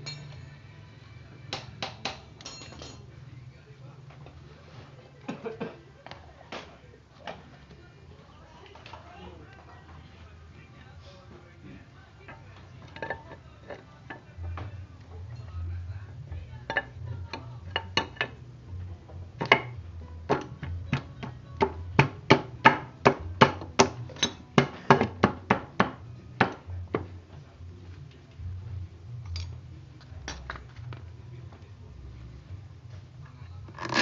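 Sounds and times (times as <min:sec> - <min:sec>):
tool taps on engine parts: 0:19.4 - 0:27.1.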